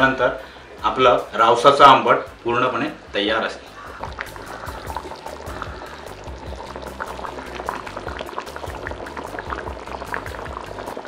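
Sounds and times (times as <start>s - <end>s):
curry bubbling in a pan: 3.8s - 11.0s.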